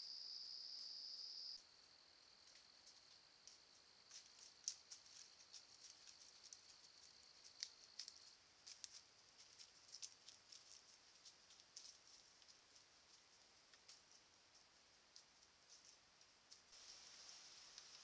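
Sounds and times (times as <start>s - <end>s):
hooves stepping through dry leaves: 4.1s - 13.8s.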